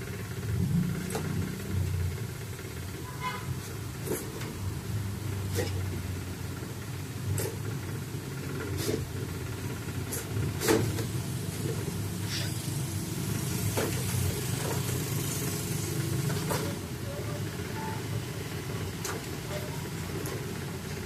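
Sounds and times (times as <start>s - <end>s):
low motor hum: 0.0s - 3.1s.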